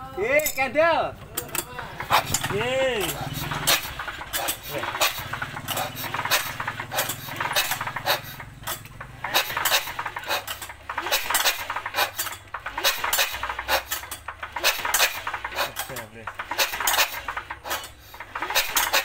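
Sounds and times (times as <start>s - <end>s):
metal tools clinking on engine: 0.2s - 19.0s
low engine hum: 1.2s - 10.9s.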